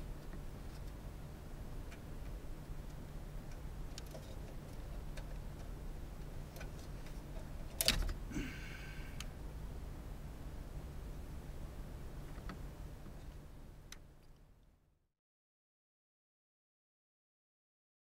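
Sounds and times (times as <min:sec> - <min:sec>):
low steady hum: 0:00.0 - 0:15.1.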